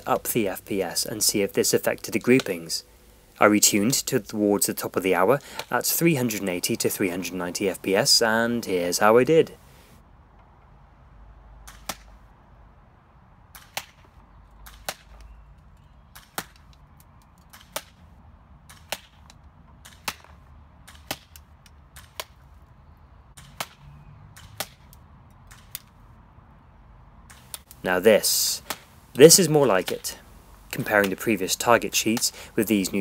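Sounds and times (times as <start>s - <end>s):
pellets striking paper target: 29.6s - 30.2s.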